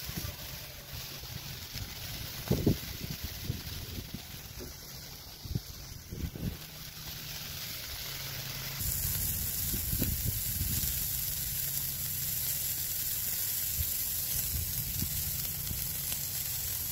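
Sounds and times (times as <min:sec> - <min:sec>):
sausages sizzling on a grill: 0:00.0 - 0:16.9.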